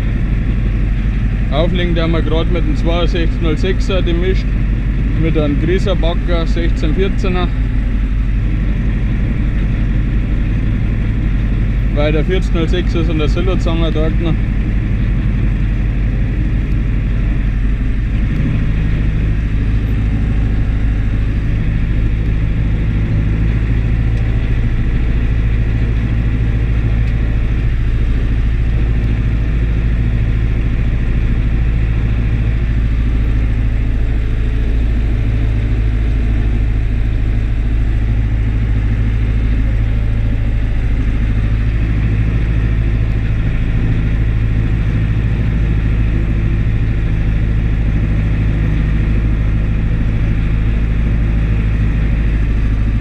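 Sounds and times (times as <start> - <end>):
tractor diesel engine running: 0.0 - 53.0.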